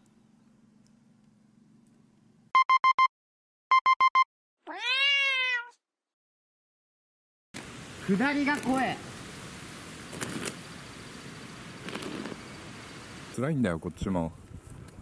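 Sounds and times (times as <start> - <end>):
short electronic beeps: 2.6 - 3.1, 3.7 - 4.3
cat meow: 4.6 - 5.8.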